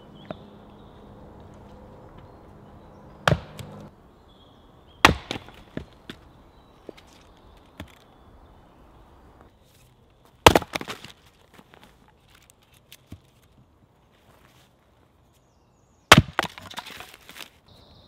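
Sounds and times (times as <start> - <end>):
split wood knocking as it falls: 3.2 - 3.8, 5.0 - 6.2, 10.4 - 11.2, 16.1 - 17.5
axe splitting log: 3.2 - 3.9, 5.0 - 6.2, 10.4 - 11.2, 16.1 - 17.5.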